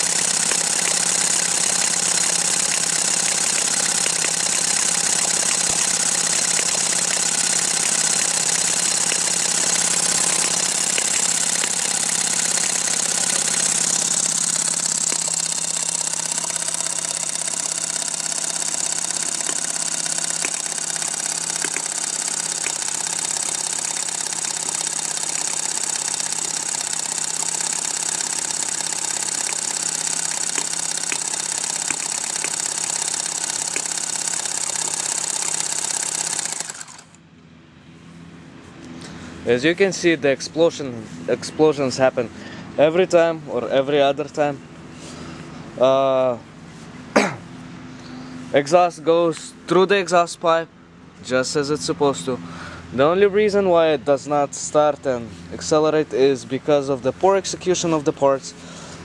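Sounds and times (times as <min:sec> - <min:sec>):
electric drill motor whine: 0:00.0 - 0:37.2.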